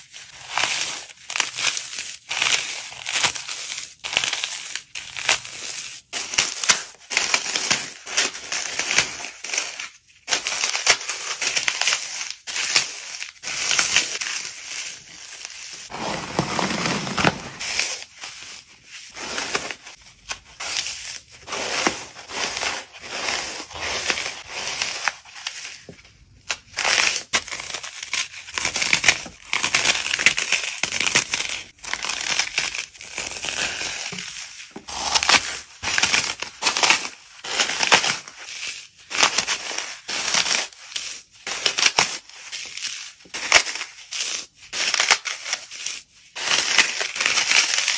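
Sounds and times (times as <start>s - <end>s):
floral foam crunching: 11.8s - 18.1s.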